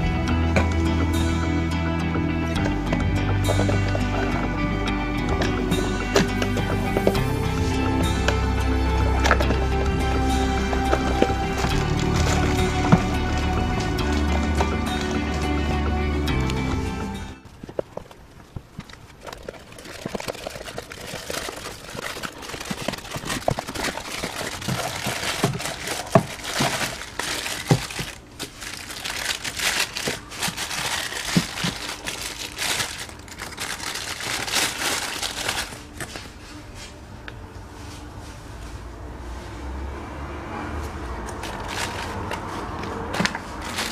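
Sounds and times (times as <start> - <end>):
cardboard and paper crinkling: 9.0 - 15.9, 17.4 - 36.5, 41.3 - 43.9.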